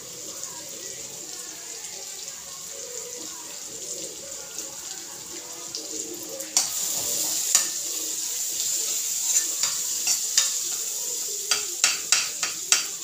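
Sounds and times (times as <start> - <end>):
food sizzling in frying pan: 0.0 - 13.0
utensil clicking against pan: 8.6 - 10.9, 11.5 - 13.0.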